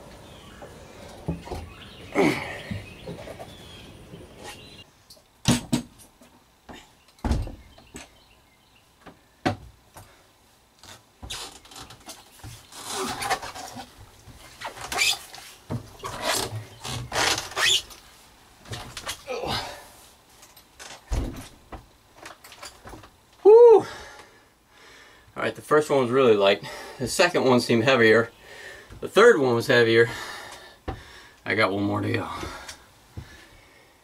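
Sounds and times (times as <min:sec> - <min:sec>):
footsteps on wooden steps: 0:30.1 - 0:31.2, 0:32.2 - 0:33.6.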